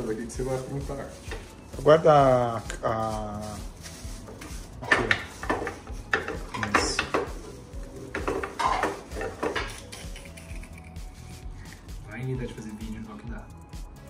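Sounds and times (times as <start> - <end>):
rolling pin on countertop: 4.2 - 10.0
utensils knocking and clinking: 4.3 - 11.2.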